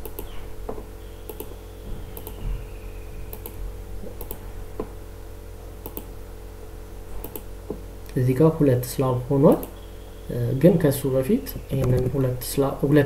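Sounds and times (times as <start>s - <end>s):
computer mouse clicking: 0.0s - 0.3s, 1.3s - 1.5s, 2.2s - 2.4s, 3.3s - 3.6s, 4.2s - 4.4s, 5.8s - 6.1s, 7.2s - 7.5s
low electrical hum: 0.0s - 13.0s.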